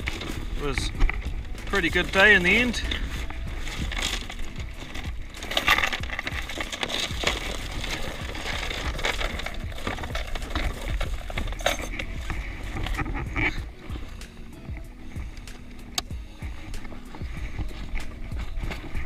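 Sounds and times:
metal chain clinking: 0.0s - 14.7s.

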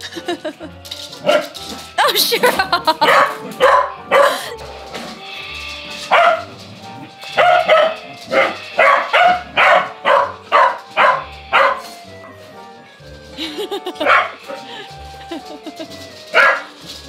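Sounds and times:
dog barking: 1.2s - 1.5s, 3.0s - 4.4s, 6.1s - 6.5s, 7.3s - 12.0s, 14.0s - 14.8s, 16.3s - 16.7s.

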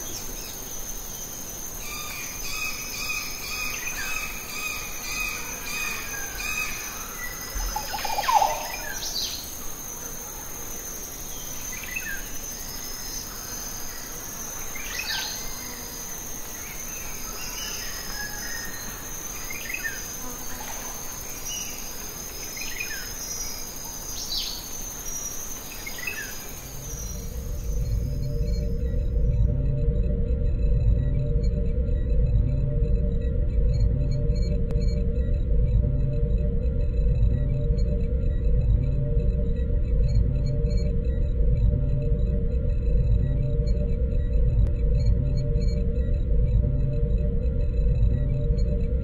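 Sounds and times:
high-pitched insect trilling: 0.0s - 29.5s
bird chirping: 1.9s - 9.5s.

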